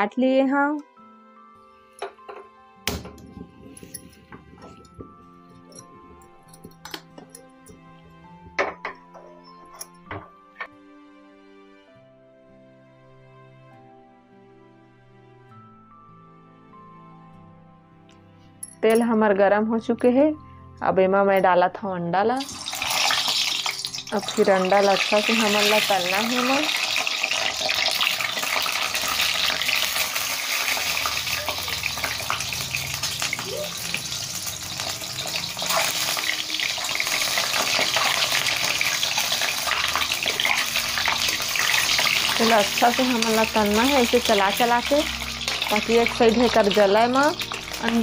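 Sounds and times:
soft instrumental background music: 0.0s - 48.0s
eggs sizzling in hot oil: 22.4s - 48.0s.

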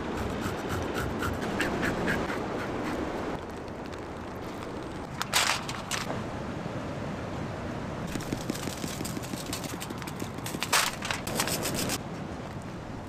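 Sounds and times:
foil rustling: 8.1s - 12.0s
seasoning shaker rattling: 8.1s - 12.0s.

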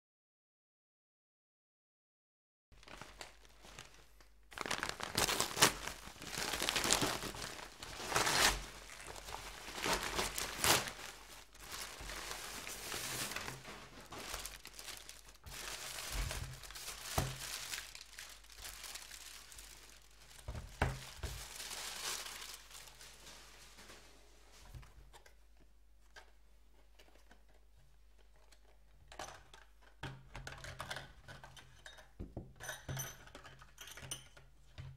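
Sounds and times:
packing paper crinkling: 2.8s - 24.1s.

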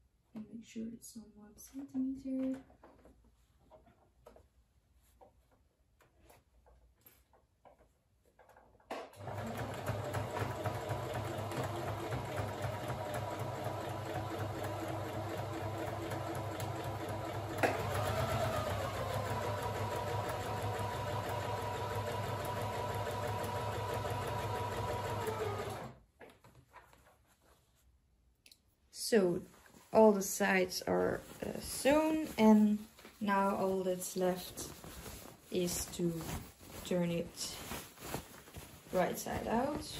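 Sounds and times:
sewing machine stitching: 9.1s - 26.0s.

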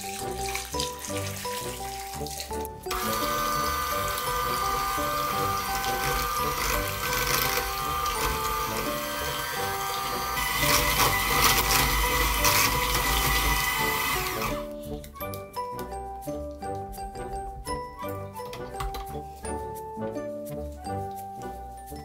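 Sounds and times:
liquid pouring into glass bowl: 0.0s - 3.2s
background music: 0.0s - 22.0s
electric hand mixer running: 2.9s - 14.8s.

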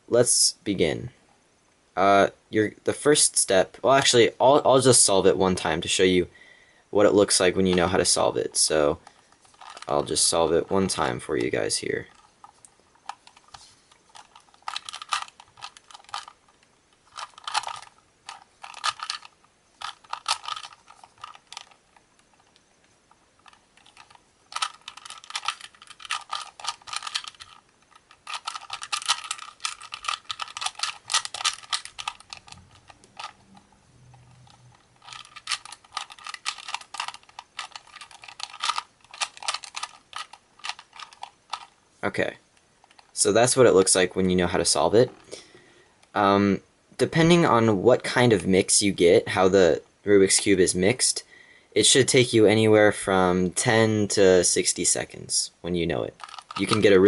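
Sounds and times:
puzzle cube clicking: 9.0s - 41.8s, 42.6s - 43.2s, 56.1s - 57.0s.

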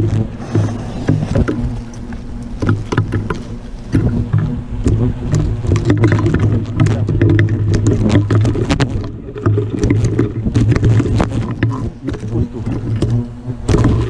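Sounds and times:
hornets buzzing: 0.0s - 14.0s
scattered clicks and knocks: 0.0s - 14.0s.

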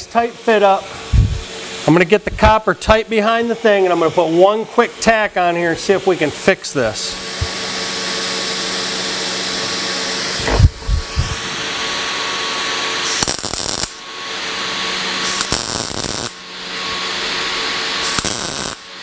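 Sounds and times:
machine hum: 0.0s - 5.9s, 6.9s - 19.0s
welding arc crackle: 13.0s - 14.0s, 15.2s - 16.5s, 18.0s - 19.0s.

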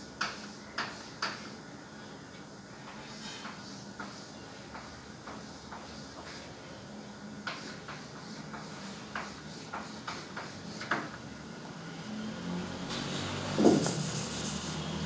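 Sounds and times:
chalk tapping and scraping on blackboard: 0.0s - 1.6s, 2.8s - 6.5s, 7.4s - 11.2s, 12.9s - 15.0s.

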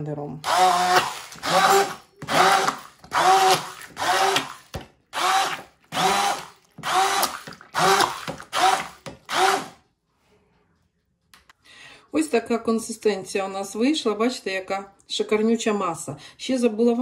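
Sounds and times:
stick blender motor whining: 0.4s - 9.8s.

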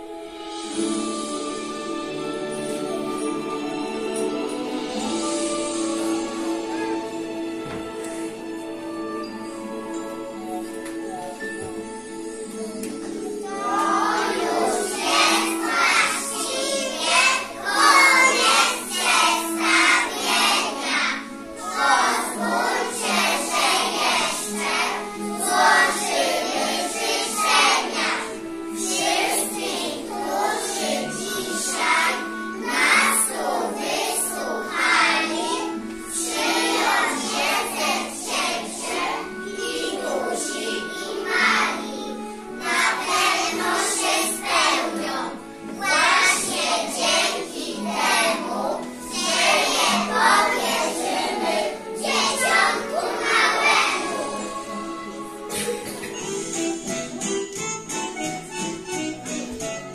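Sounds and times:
children singing: 0.0s - 56.9s
instrumental backing track: 41.0s - 59.9s.

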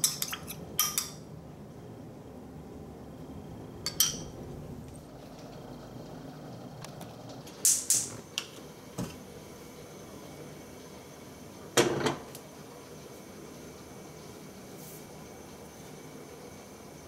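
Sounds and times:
metal spoon clinking glass bowl: 0.0s - 1.2s.

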